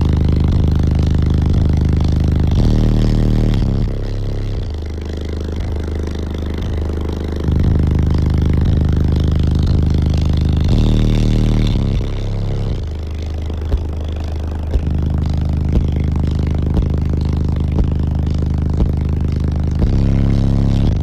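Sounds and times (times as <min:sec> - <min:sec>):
deep subwoofer bass notes: 0:00.0 - 0:21.0.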